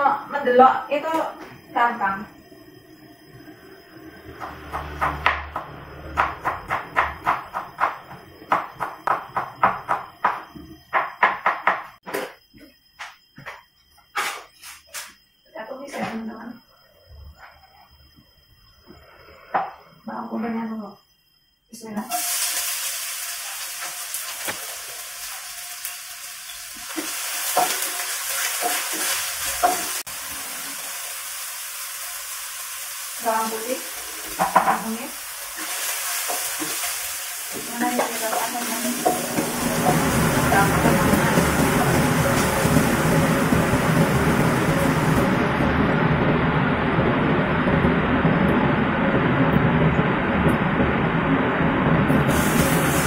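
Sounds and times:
food sizzling in hot oil: 0:21.9 - 0:45.7, 0:52.1 - 0:53.0.

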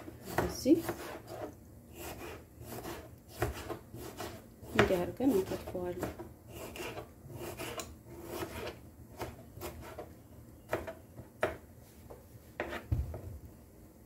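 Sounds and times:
knife slicing on cutting board: 0:00.3 - 0:10.0, 0:12.6 - 0:12.9.

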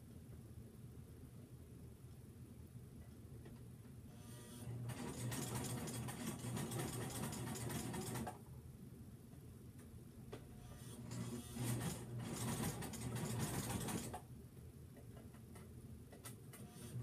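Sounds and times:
sewing machine stitching: 0:04.7 - 0:08.4, 0:10.9 - 0:14.2.

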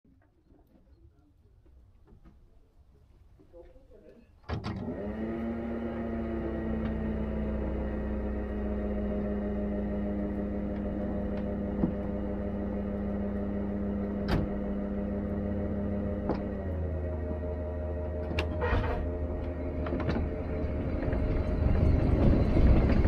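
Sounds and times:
electric railcar hum: 0:04.8 - 0:23.0.

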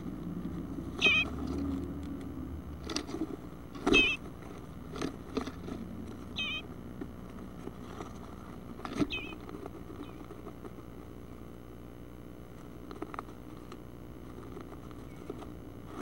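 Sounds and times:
knocks and scrapes in nest box: 0:00.4 - 0:06.4, 0:07.0 - 0:11.4, 0:12.5 - 0:16.0
wavering bluebird calls: 0:00.9 - 0:01.4, 0:03.8 - 0:04.2, 0:06.3 - 0:06.7, 0:08.9 - 0:09.4.

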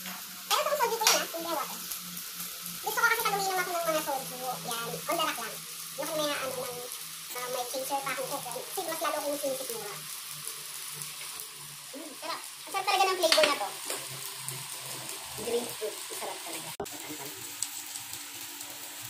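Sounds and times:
meat sizzling on grill pan: 0:00.0 - 0:19.0
person's voice: 0:00.5 - 0:01.8, 0:02.8 - 0:10.0, 0:11.9 - 0:13.8, 0:15.4 - 0:17.4.

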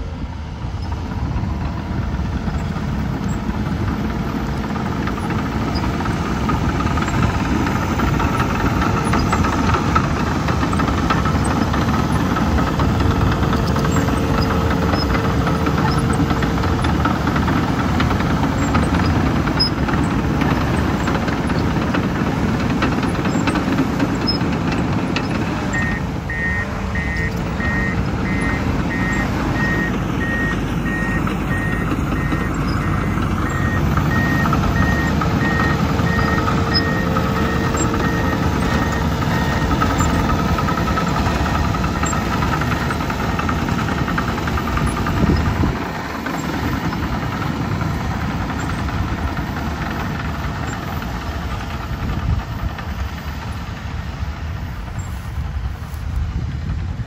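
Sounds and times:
bulldozer diesel engine: 0:00.0 - 0:57.0
reversing alarm beeps: 0:25.7 - 0:42.9.

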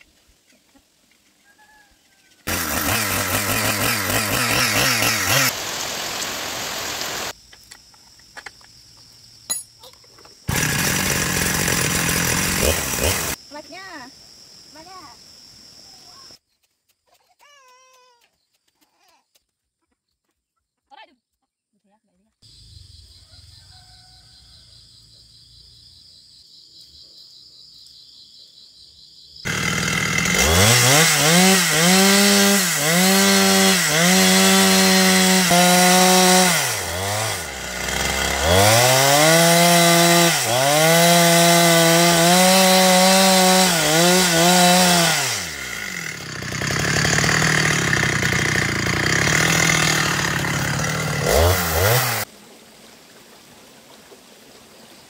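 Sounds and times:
chainsaw cutting wood: 0:02.4 - 0:07.4, 0:10.5 - 0:13.4, 0:29.5 - 0:52.3
chainsaw revving: 0:02.5 - 0:06.1, 0:10.5 - 0:13.4, 0:29.5 - 0:52.3.

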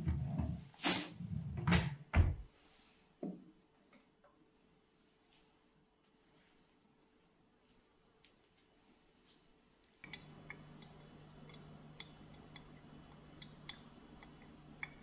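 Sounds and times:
steady low hum: 0:04.5 - 0:15.0
coffee dripping ticks: 0:10.0 - 0:15.0.

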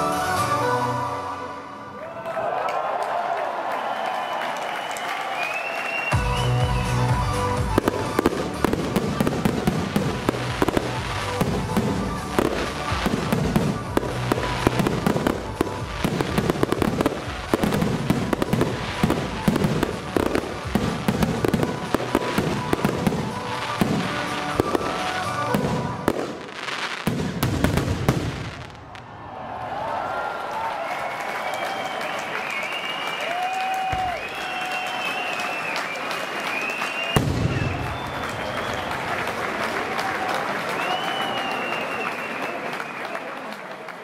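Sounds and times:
fireworks banging and crackling: 0:07.5 - 0:29.1, 0:36.6 - 0:39.6.

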